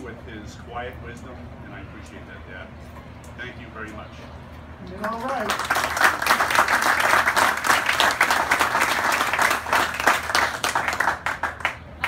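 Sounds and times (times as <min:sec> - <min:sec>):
audience applauding: 0:05.0 - 0:11.8.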